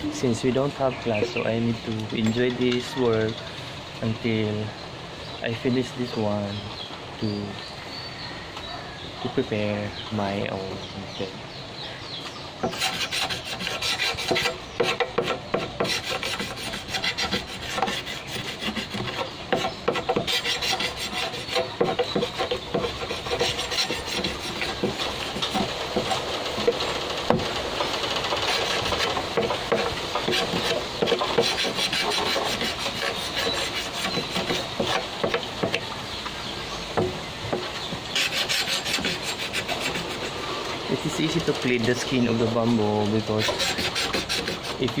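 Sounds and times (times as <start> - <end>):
machete scraping bamboo: 12.6 - 35.9, 37.5 - 45.0.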